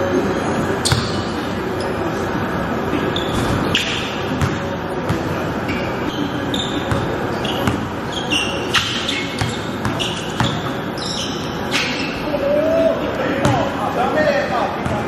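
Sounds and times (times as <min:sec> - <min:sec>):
sneaker squeaks: 0:00.7 - 0:02.3, 0:02.9 - 0:12.4.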